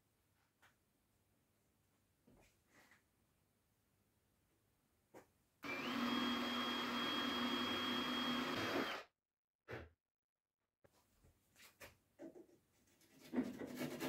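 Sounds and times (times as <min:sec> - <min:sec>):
electric power tool whining: 0:05.6 - 0:09.1.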